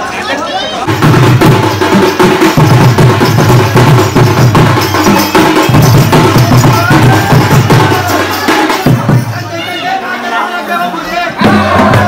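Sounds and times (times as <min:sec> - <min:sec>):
drum band playing fast rhythm: 0:00.8 - 0:10.0, 0:11.3 - 0:12.0.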